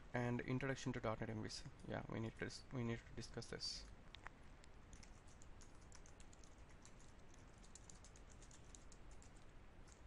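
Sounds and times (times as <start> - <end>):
faint keyboard typing: 4.1 - 10.0.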